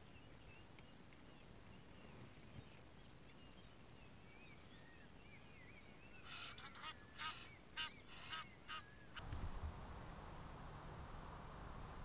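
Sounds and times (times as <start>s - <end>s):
goose honking: 6.3s - 8.9s.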